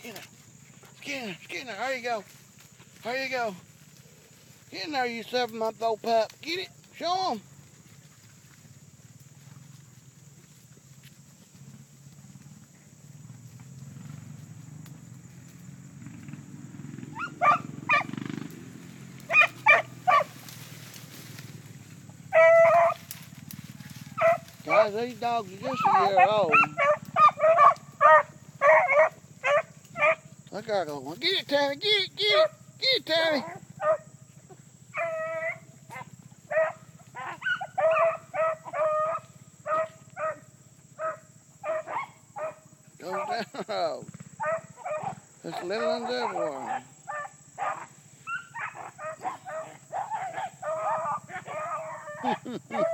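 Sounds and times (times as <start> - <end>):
beagles baying: 16.9 - 52.9
hounds barking: 17.0 - 30.4, 32.3 - 32.6, 33.2 - 52.9.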